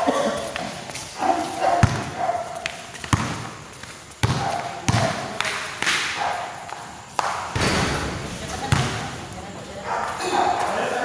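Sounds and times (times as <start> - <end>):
basketball bouncing on court: 1.7 - 6.0, 7.2 - 9.3
players' voices: 4.2 - 11.0.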